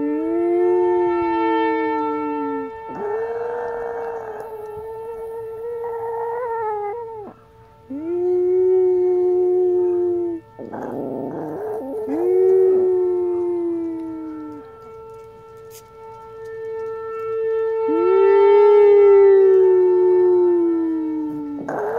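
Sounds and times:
dog howling: 0:00.0 - 0:15.2, 0:17.8 - 0:21.9
siren steady tone: 0:00.0 - 0:21.9.

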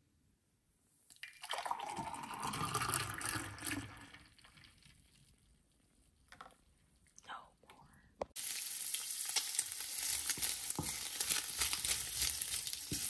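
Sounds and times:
juice pouring into glass: 0:01.2 - 0:05.2.

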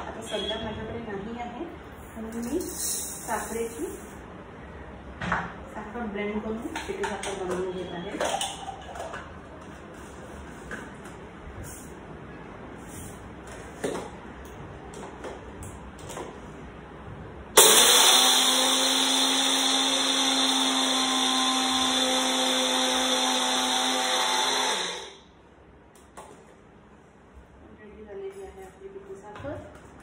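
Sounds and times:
mixer grinder motor humming: 0:17.6 - 0:25.3.

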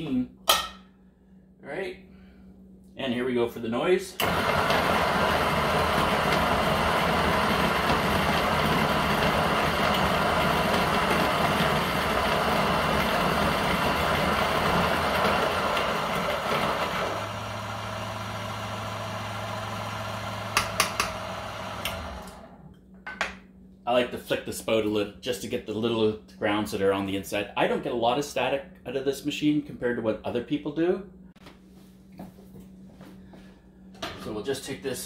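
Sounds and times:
coffee grinder grinding beans: 0:04.2 - 0:22.5
grinder motor humming: 0:04.2 - 0:22.6.

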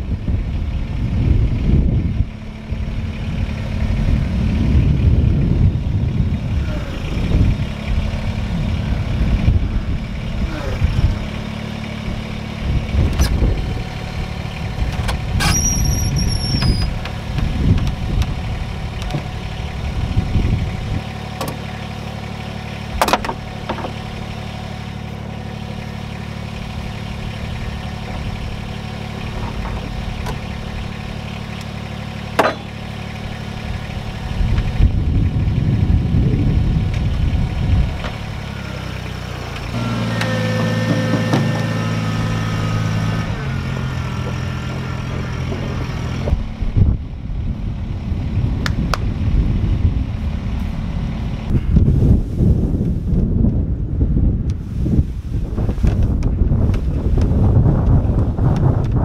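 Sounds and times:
diesel engine idling: 0:00.0 - 0:59.0
sharp knocks: 0:32.4 - 0:32.7.

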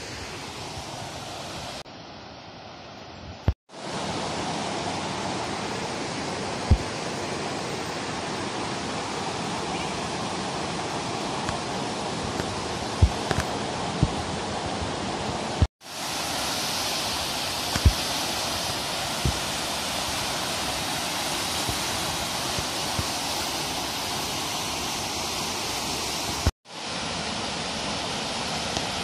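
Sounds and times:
waterfall rushing: 0:03.8 - 0:29.0.

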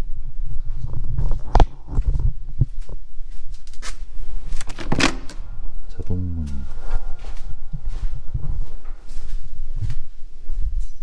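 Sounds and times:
door handle and latch click: 0:04.6 - 0:05.4
footsteps on steps: 0:06.4 - 0:11.0.

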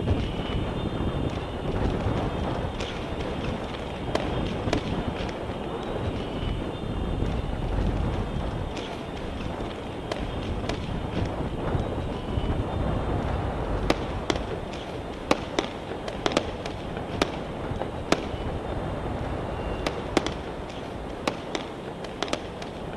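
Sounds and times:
low background rumble: 0:00.0 - 0:22.9
distant gunshots: 0:13.8 - 0:18.4, 0:19.6 - 0:22.8.

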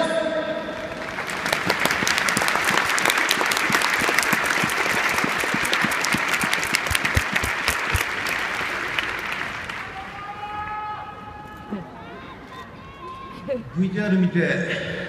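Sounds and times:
crowd applauding: 0:00.8 - 0:10.6.

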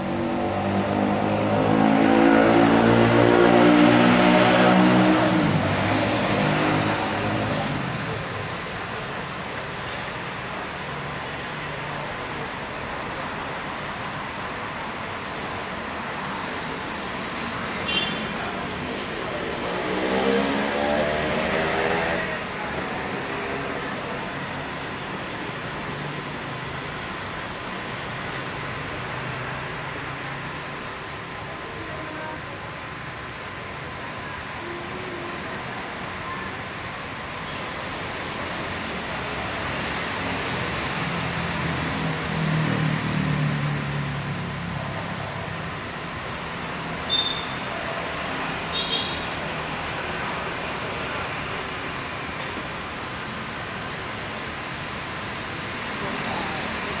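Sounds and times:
motor vehicle passing: 0:00.0 - 0:08.2
traffic noise hiss: 0:00.0 - 0:57.0.

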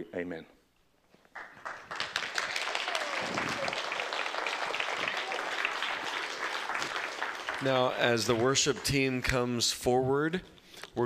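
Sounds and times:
crowd applauding: 0:01.3 - 0:09.6.

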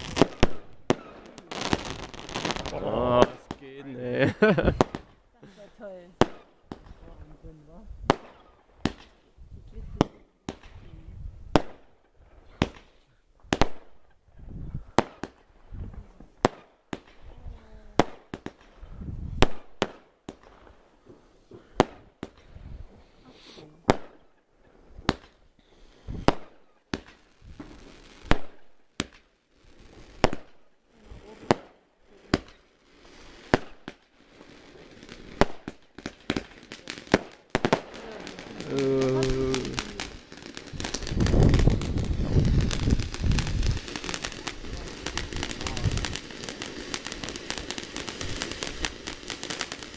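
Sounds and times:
fireworks banging: 0:00.0 - 0:09.2, 0:29.8 - 0:49.9.

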